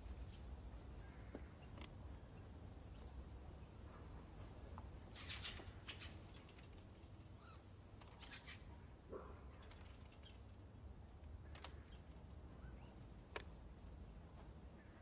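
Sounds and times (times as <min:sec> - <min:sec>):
soft clicks and rustles: 0:01.3 - 0:02.0, 0:04.4 - 0:08.5, 0:11.2 - 0:12.3, 0:12.9 - 0:14.6.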